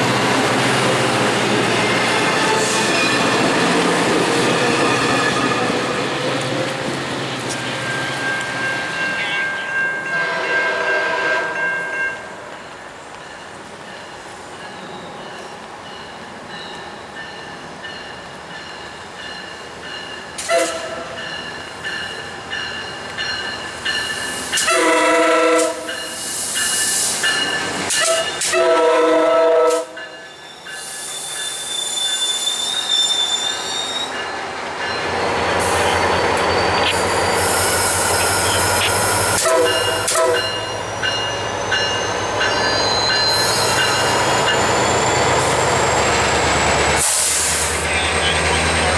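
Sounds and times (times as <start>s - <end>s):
train rumbling past: 0.0s - 48.9s
train air horn blasts: 10.0s - 11.7s, 20.4s - 21.2s, 24.6s - 26.0s, 27.9s - 30.0s, 38.4s - 40.7s
high wheel squeal: 30.2s - 46.4s.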